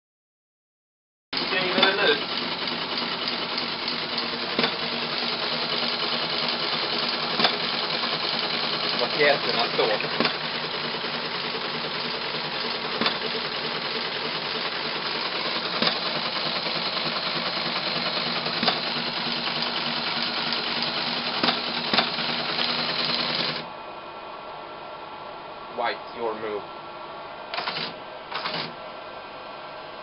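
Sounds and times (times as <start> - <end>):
teletype mechanical noise: 1.4 - 23.6, 27.5 - 28.8.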